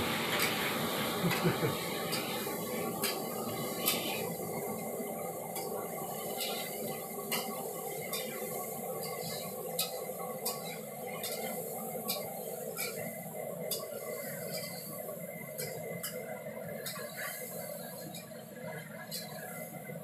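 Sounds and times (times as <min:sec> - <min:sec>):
metal utensils clicking on pan: 0:02.1 - 0:02.4, 0:03.0 - 0:04.2, 0:05.5 - 0:13.1, 0:15.6 - 0:16.2.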